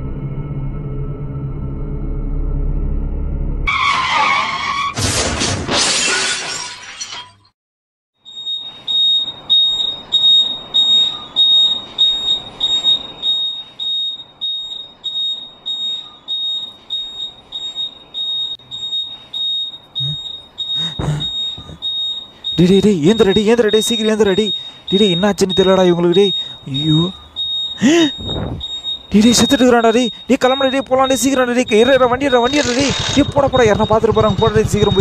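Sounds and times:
motorcycle crash smash: 3.7 - 7.5
high electronic beep: 8.3 - 35.0.

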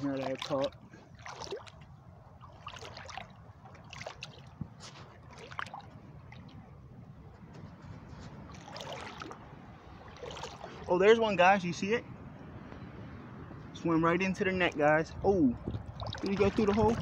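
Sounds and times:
water splashes: 0.0 - 6.8, 8.2 - 11.3, 14.2 - 17.0
shallow water sloshing: 0.0 - 11.2, 14.3 - 17.0.

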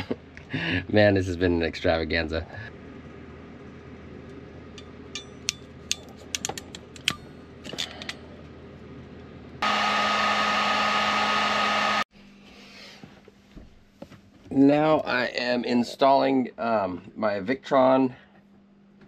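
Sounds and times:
heat gun humming: 9.6 - 12.0.

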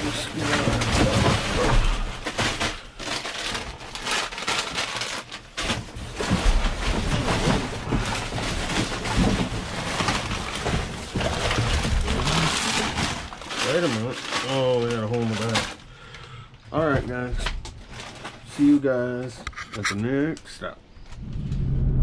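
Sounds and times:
trash bags crunching and rustling: 0.0 - 16.2, 16.8 - 19.1
wind rumbling on microphone: 21.1 - 22.0.

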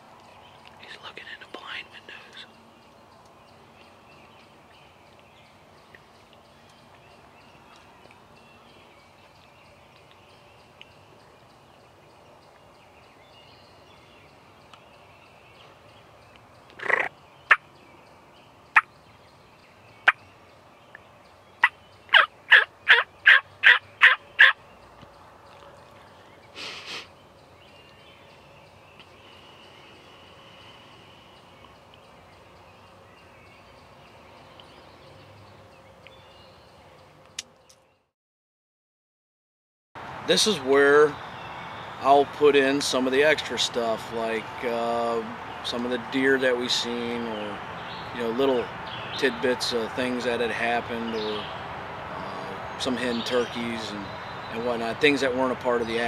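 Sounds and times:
turkey calls: 16.8 - 17.6, 21.6 - 24.6
turkey gobbling: 22.1 - 24.6.

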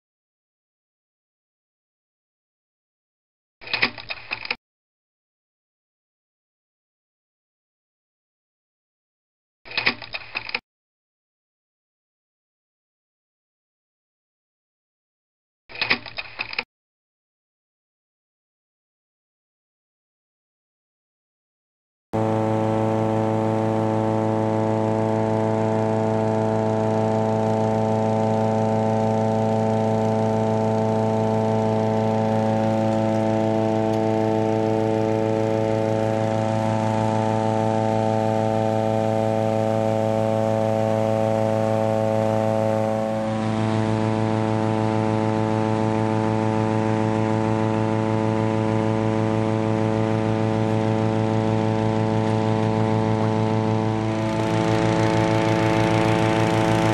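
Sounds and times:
engine inflator fan running: 22.2 - 56.9.

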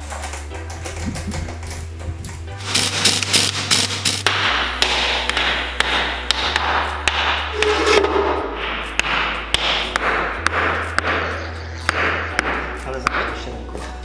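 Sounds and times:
hammer striking metal: 3.8 - 13.5.

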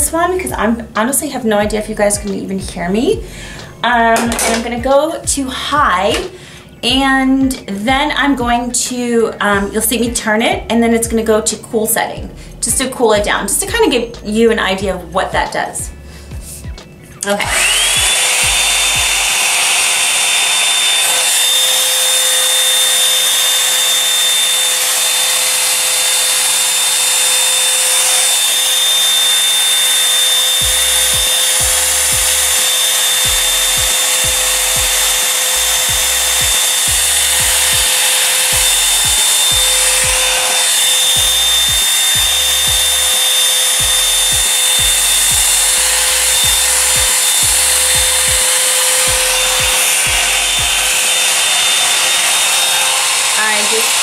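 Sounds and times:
hot-air brush blowing: 3.1 - 4.8, 15.8 - 54.0
high-pitched motor whine: 12.2 - 54.0.

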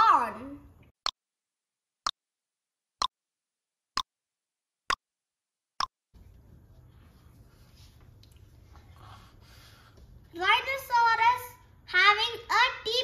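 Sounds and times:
faint room noise: 6.2 - 13.0.

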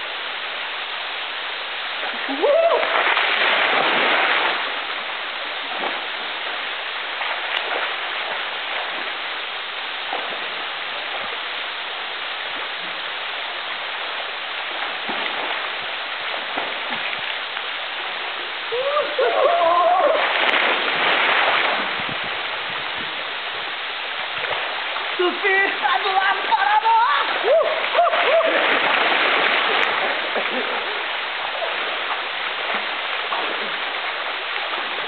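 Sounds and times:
waterfall rushing into a pool: 0.0 - 35.0
person calling out: 2.2 - 2.8, 18.8 - 20.2, 25.2 - 28.2.

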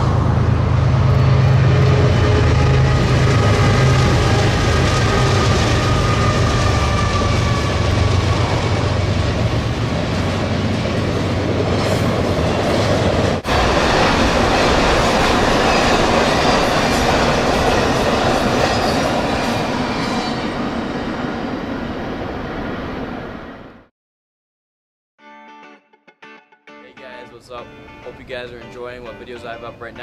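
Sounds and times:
freight train wheels rumbling on rail: 0.0 - 23.3.

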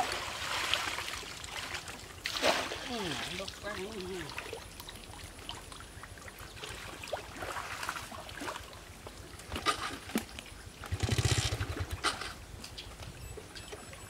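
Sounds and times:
water splashing and dripping: 0.0 - 10.6.

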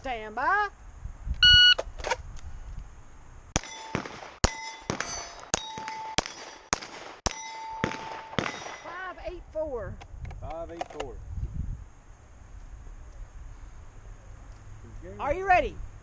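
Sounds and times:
shot timer beep: 1.4 - 1.8
pistol shots: 3.6 - 8.9
steel target plates ringing: 3.6 - 9.1.

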